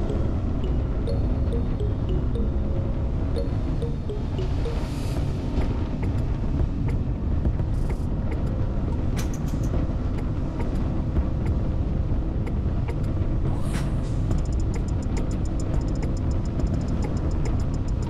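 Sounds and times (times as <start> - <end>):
wind: 0.0 - 18.0
sharp ticks: 14.3 - 18.0.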